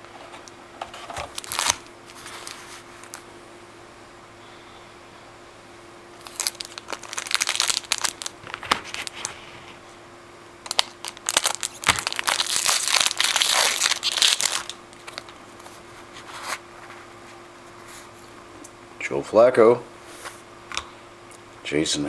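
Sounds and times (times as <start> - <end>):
foil wrapper crinkling and tearing: 0.9 - 3.2, 6.2 - 9.4, 10.6 - 15.7.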